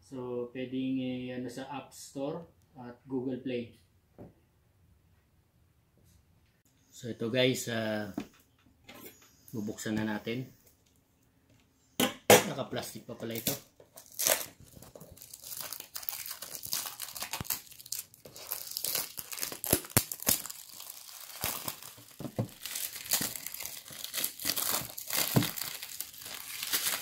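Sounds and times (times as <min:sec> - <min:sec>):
plastic film crinkling and tearing: 0:13.2 - 0:27.0.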